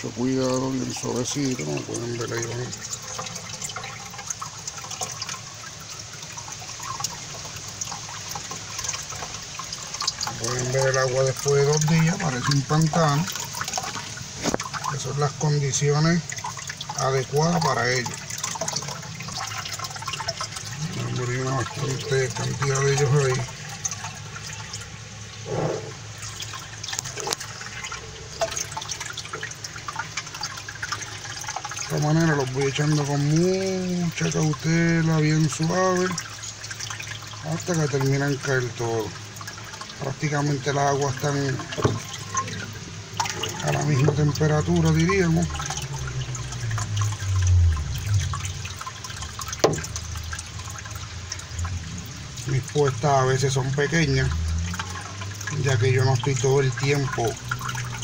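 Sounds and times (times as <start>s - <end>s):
water pouring into a pond: 0.0s - 58.0s.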